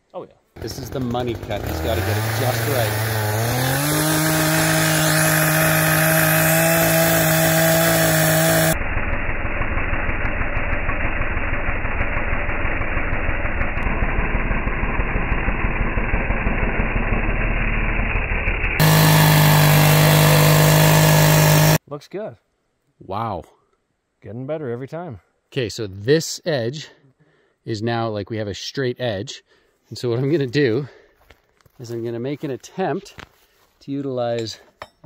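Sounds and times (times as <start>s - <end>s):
chainsaw cutting log: 0.6s - 21.8s.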